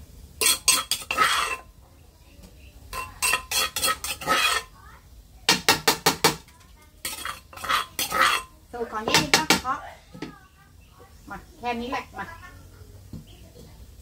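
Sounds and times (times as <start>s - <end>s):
metal spatula scraping a pot: 0.4s - 1.8s, 2.9s - 4.8s, 7.0s - 9.5s.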